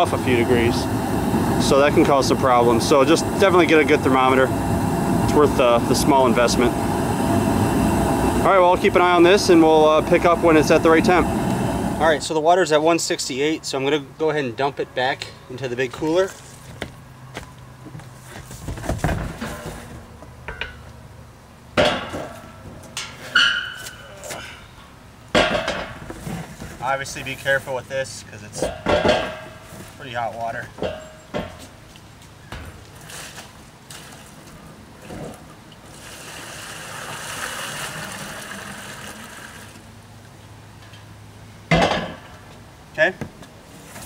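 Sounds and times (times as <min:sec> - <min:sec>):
water pouring into a cooler: 0:35.3 - 0:39.9.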